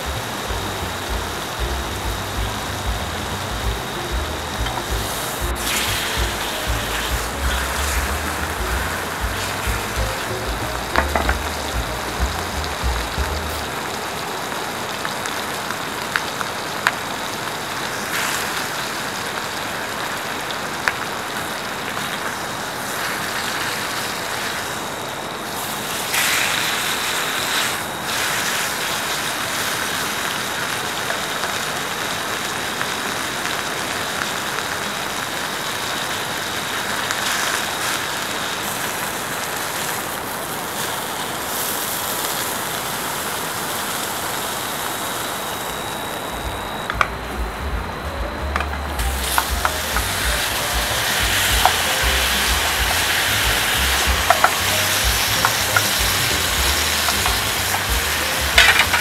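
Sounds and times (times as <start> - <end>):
oil popping: 0.0 - 14.0, 48.5 - 59.0
meat sizzling in frying pan: 0.0 - 45.7, 49.0 - 59.0.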